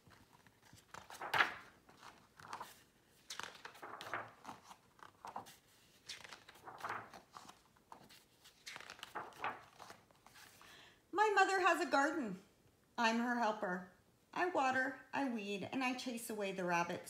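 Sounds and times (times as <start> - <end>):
book pages rustling: 0.0 - 10.6.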